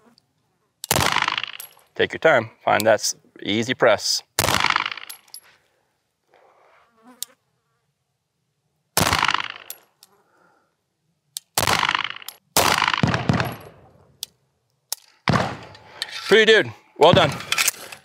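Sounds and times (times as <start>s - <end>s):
pistol shots with echo: 0.9s - 1.7s, 4.4s - 5.2s, 9.0s - 9.8s, 11.6s - 13.8s, 15.3s - 15.8s, 17.1s - 17.5s.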